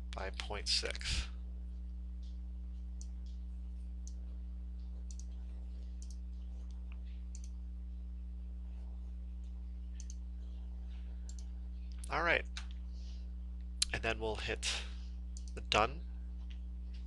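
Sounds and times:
low electrical hum: 0.0 - 17.0
computer mouse clicks: 5.1 - 5.4, 6.0 - 7.6, 10.0 - 10.2, 11.3 - 12.0.

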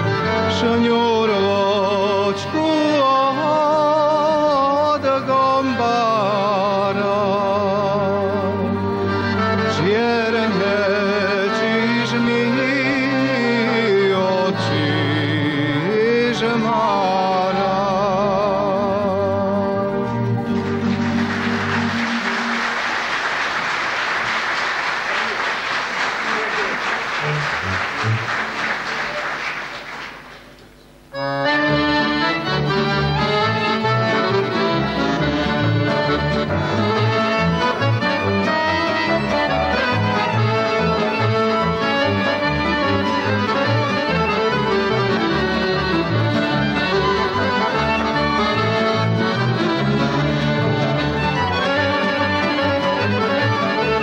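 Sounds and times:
clarinet: 0.0 - 15.2, 31.1 - 54.0
double bass: 0.0 - 22.6, 31.2 - 54.0
strings: 0.0 - 30.0, 31.1 - 54.0
accordion: 0.0 - 30.1, 31.0 - 54.0
audience applause: 20.4 - 30.6.

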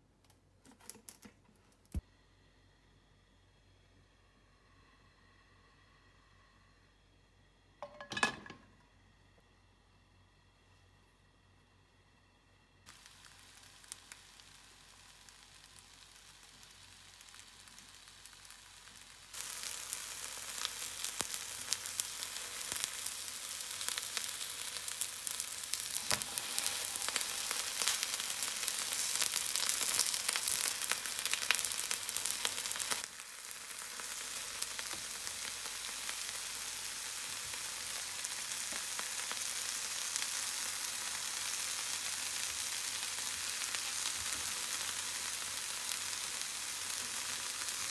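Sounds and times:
onions sizzling in a frying pan: 12.9 - 47.9.

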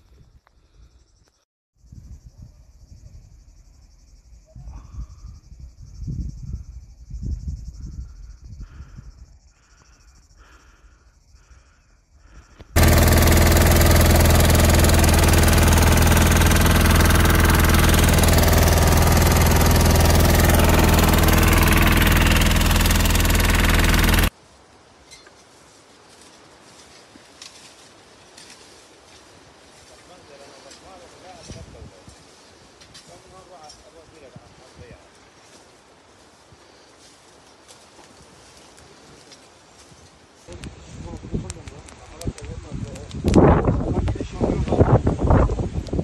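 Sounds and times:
low rumbling: 12.8 - 24.3.

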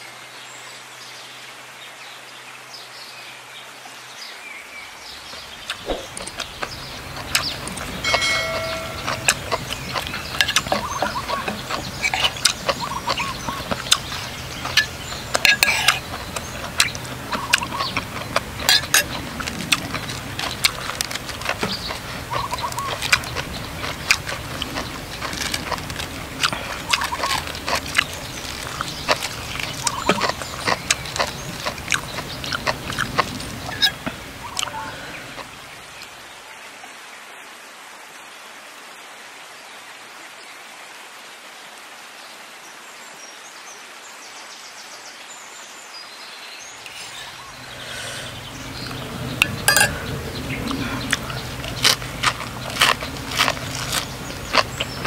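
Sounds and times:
crisp fried fish being chewed: 5.3 - 35.8, 46.9 - 55.0
metal spoon scraping a plate: 14.7 - 16.1, 49.4 - 50.1.

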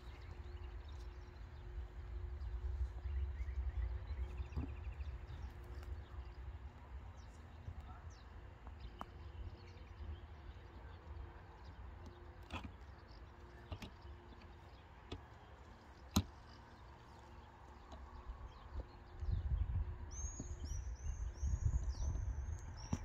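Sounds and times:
steady low rumble: 0.0 - 12.1, 16.8 - 23.0.

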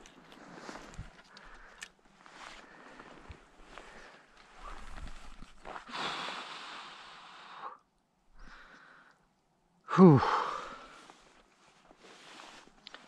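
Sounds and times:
man breathing out hard: 2.6 - 7.8, 9.9 - 11.2
man sighing loudly: 9.8 - 11.0.

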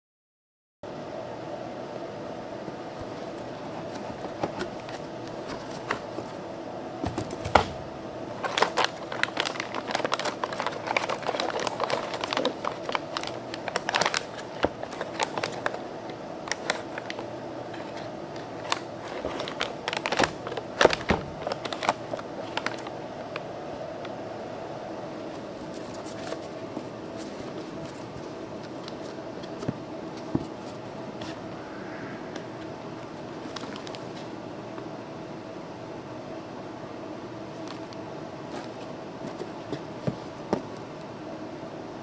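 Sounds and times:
steady background hum: 0.8 - 42.0
packaging crinkling and clicking: 8.4 - 15.8, 16.5 - 23.4, 33.4 - 34.3.

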